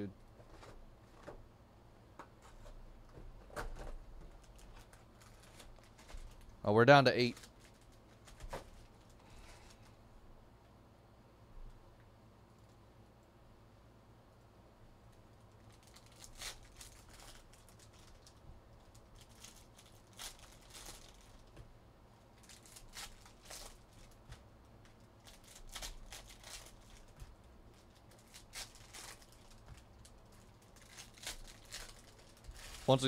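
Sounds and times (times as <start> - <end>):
foil wrappers tearing and crinkling: 4.4 - 6.5, 7.3 - 9.6, 15.6 - 21.6, 22.4 - 33.0.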